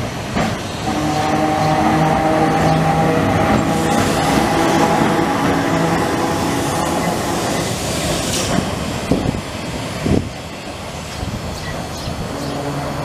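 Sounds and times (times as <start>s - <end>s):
tram motor whine: 0.0s - 9.8s
wheels rumbling on rails: 0.0s - 13.0s.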